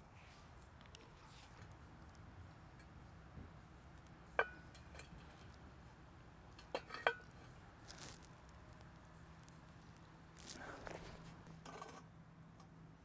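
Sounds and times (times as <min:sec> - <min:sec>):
small hard objects clinking: 0:06.6 - 0:10.6.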